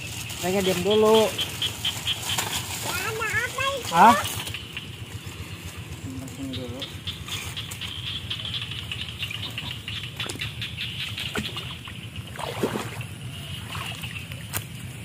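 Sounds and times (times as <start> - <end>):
water sloshing and splashing: 9.4 - 15.0.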